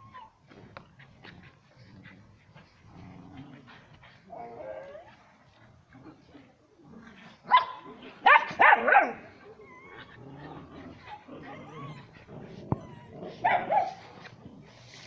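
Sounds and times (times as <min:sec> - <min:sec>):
faint dog sounds: 0:00.0 - 0:15.0
dog barking: 0:07.5 - 0:09.2, 0:13.4 - 0:14.0.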